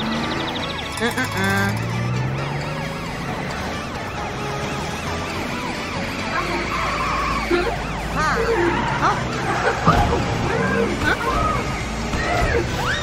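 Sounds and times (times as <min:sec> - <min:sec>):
cartoon siren wailing: 0:06.3 - 0:10.2.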